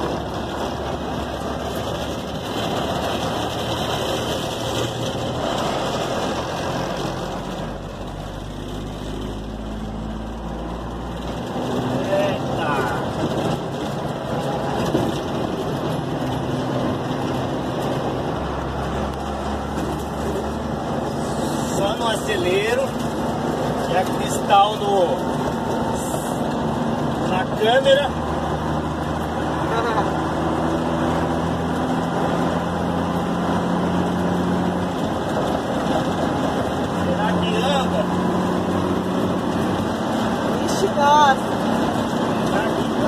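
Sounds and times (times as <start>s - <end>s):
road noise: 0.0s - 43.0s
truck engine droning: 0.0s - 43.0s.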